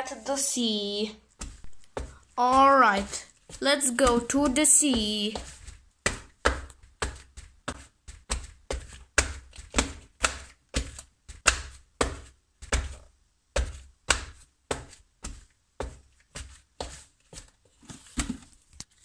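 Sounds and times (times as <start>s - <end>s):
footsteps on wooden stairs: 1.4s - 6.8s.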